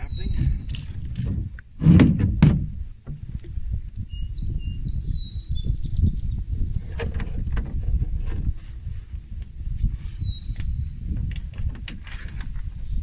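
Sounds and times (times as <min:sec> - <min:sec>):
wind rumble on microphone: 0:00.0 - 0:13.0
loud knocks: 0:01.8 - 0:02.7.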